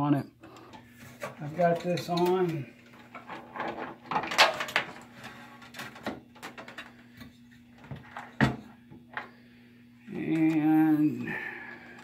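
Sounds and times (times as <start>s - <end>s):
faint steady hum: 0.0s - 12.0s
cables and connectors clicking: 10.2s - 10.7s.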